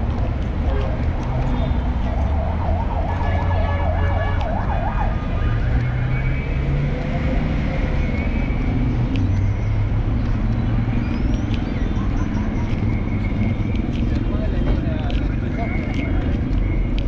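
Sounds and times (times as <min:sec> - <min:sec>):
city traffic rumble: 0:00.0 - 0:17.0
emergency siren yelping: 0:01.3 - 0:05.9.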